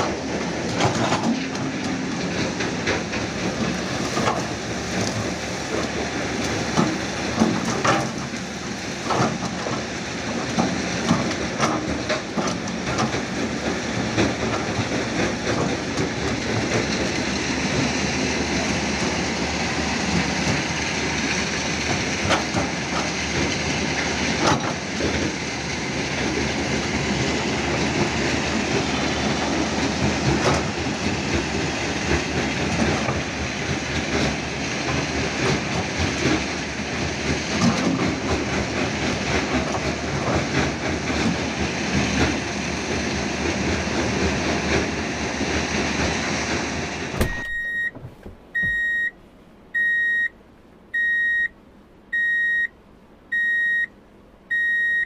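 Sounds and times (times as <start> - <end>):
excavator running under load: 0.0 - 49.2, 49.8 - 55.0
high electronic beep: 47.4 - 48.0, 48.6 - 49.1, 49.8 - 50.3, 51.0 - 51.5.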